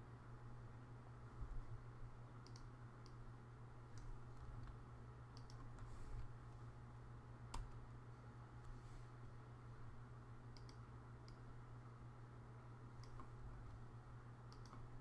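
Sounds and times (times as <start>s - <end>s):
low steady hum: 0.0s - 15.0s
computer keyboard clicks: 2.4s - 3.2s, 5.4s - 5.7s, 10.6s - 11.4s, 13.0s - 13.3s, 14.5s - 14.9s.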